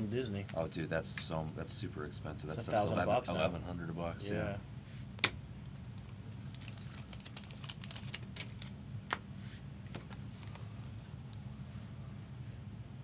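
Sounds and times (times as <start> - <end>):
cards rustling: 5.9 - 9.2.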